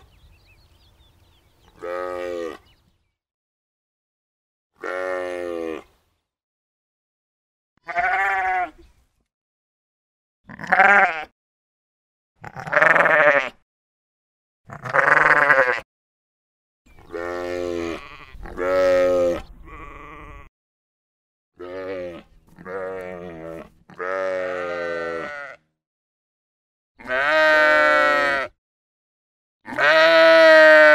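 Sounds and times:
sheep bleating: 1.8s - 2.6s, 4.8s - 5.9s, 7.8s - 8.8s, 10.5s - 11.3s, 12.4s - 13.6s, 14.7s - 15.8s, 17.1s - 20.5s, 21.6s - 25.7s, 27.0s - 28.6s, 29.6s - 30.9s.

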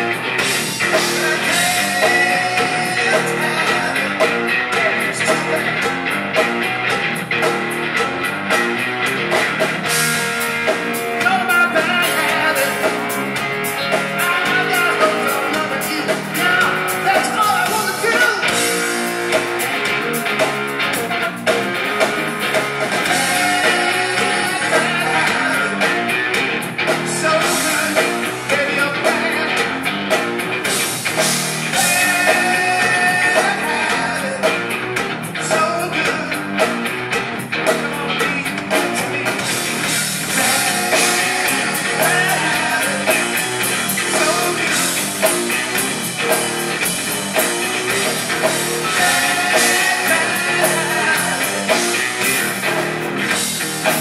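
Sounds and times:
drums: 0.0s - 54.0s
electric guitar: 0.0s - 54.0s
rock band playing live: 0.0s - 54.0s
man singing: 0.8s - 5.9s, 11.2s - 19.4s, 23.0s - 29.8s, 31.7s - 34.8s, 35.4s - 36.7s, 37.6s - 38.5s, 40.2s - 45.0s, 48.0s - 52.0s.

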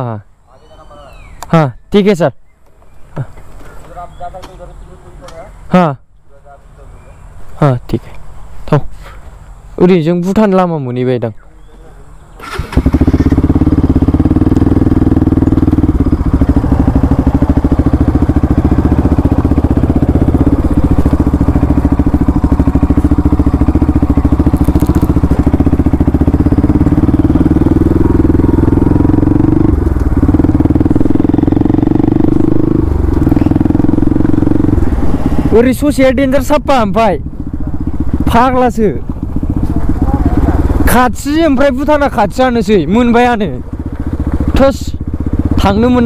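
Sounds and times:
motorcycle engine running: 12.4s - 46.0s
tyres on gravel: 17.5s - 26.8s.

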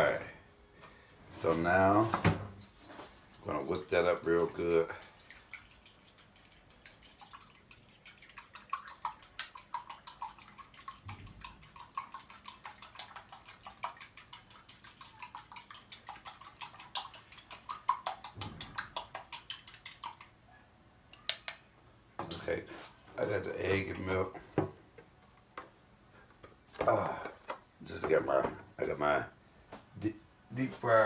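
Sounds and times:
whisk clicking against bowl: 3.1s - 20.3s.

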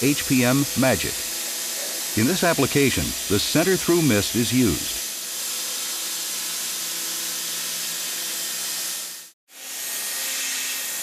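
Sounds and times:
milling cutter hissing: 0.0s - 5.0s.

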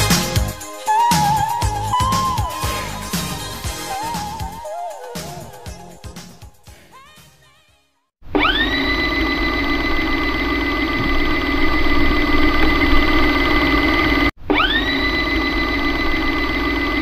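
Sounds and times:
rising whine: 8.4s - 17.0s.

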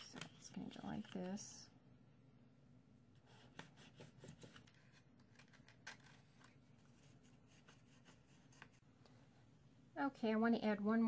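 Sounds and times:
cardstock rustling and clicking: 3.5s - 7.1s.

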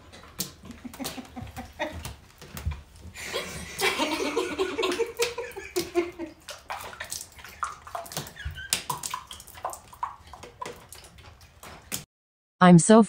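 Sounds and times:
liquid sloshing in a cup: 0.0s - 12.0s
giggles: 0.7s - 2.1s, 3.2s - 6.4s
woman laughing: 0.7s - 2.1s, 3.2s - 6.4s.

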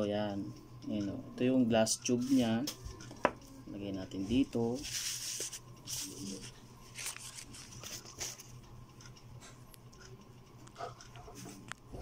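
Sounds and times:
tissue paper rustling: 4.8s - 8.4s.

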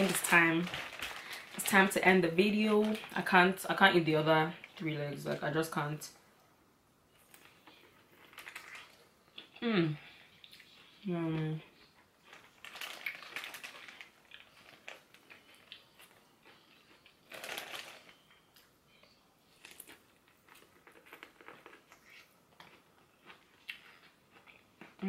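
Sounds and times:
plastic bag crinkling: 0.0s - 3.8s, 7.2s - 9.0s, 12.2s - 18.3s
chewing corn on the cob: 11.8s - 18.4s, 19.5s - 25.0s.

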